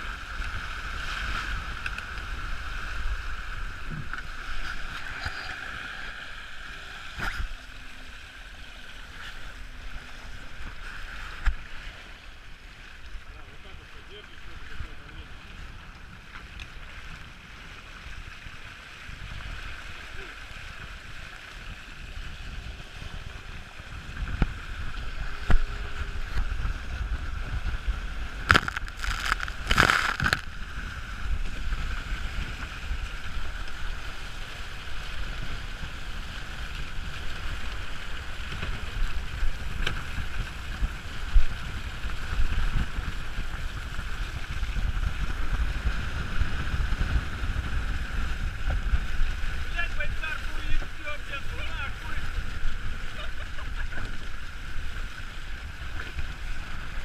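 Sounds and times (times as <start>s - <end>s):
water rushing past hull: 0.0s - 57.0s
wind buffeting microphone: 21.0s - 34.0s, 34.7s - 57.0s.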